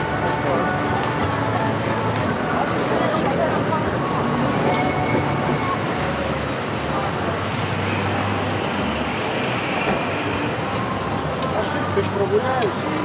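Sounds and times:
faint voices: 0.0s - 9.3s
passing vehicles: 0.0s - 13.0s.

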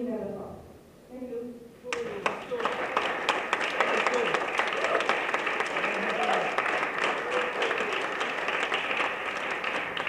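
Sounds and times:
audience applauding: 1.9s - 10.0s
faint voices: 5.8s - 8.2s.

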